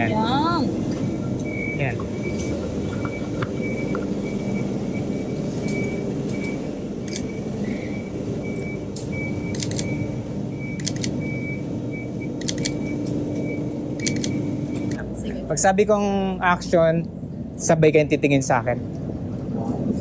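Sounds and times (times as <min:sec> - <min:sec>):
city traffic hum: 0:00.0 - 0:20.0
high electronic beep: 0:01.2 - 0:15.0
camera shutter clicks: 0:12.4 - 0:12.8.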